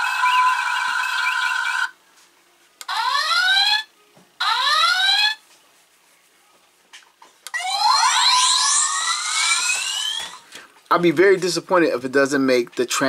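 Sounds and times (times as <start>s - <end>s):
rising alarm whoops: 7.5s - 10.4s
steady electronic tone: 7.5s - 10.4s.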